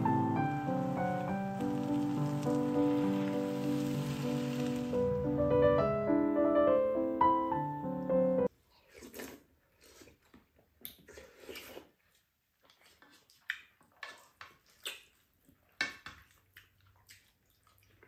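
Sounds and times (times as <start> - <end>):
people eating and chewing: 8.5 - 18.0.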